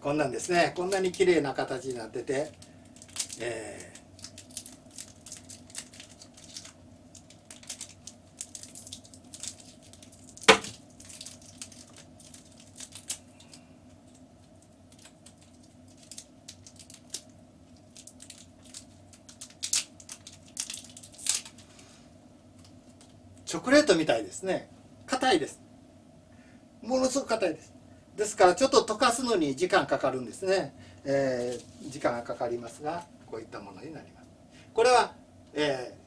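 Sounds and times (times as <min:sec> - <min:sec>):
wrapper crinkling: 0:02.3 - 0:21.8, 0:31.2 - 0:32.0
wrapper snap: 0:03.0 - 0:13.6, 0:14.6 - 0:21.7.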